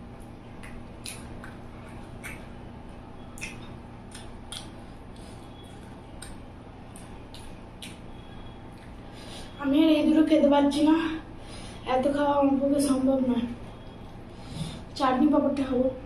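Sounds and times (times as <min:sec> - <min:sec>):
chewing and handling food: 0:00.0 - 0:09.2
steady low hum: 0:00.0 - 0:16.0.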